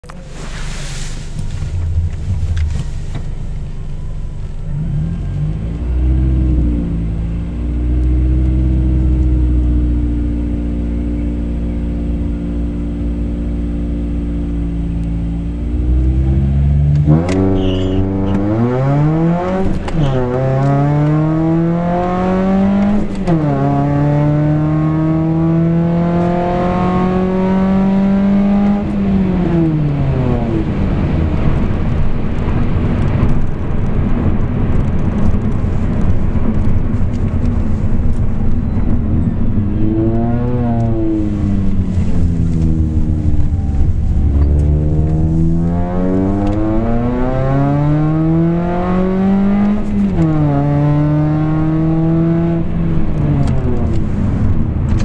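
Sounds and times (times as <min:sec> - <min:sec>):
car engine accelerating: 0:00.0 - 0:55.0.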